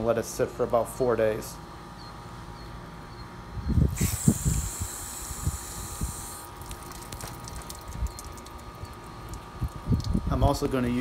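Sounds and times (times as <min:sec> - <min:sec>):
spray nozzle hissing: 0:03.9 - 0:06.5.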